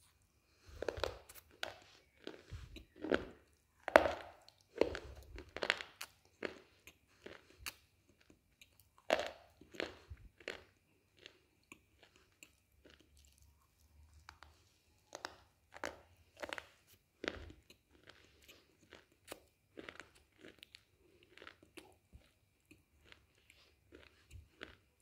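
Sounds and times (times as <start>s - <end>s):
slate crunching between teeth: 0.7s - 13.4s.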